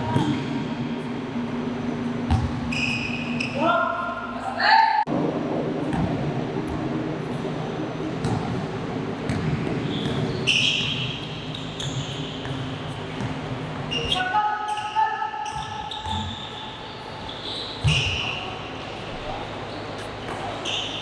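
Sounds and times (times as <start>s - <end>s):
sneakers squeaking on court: 0.0s - 3.7s, 9.2s - 21.0s.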